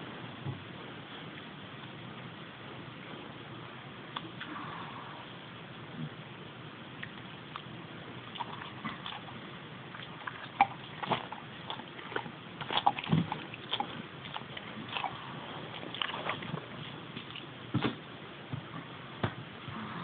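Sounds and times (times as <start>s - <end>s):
dog licking and nibbling: 10.0s - 17.5s.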